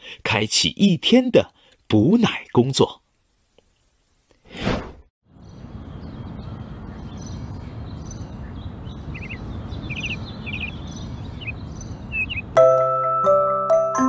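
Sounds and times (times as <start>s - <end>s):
small birds chirping: 5.3s - 12.6s
glockenspiel-like mallet music: 12.6s - 14.0s.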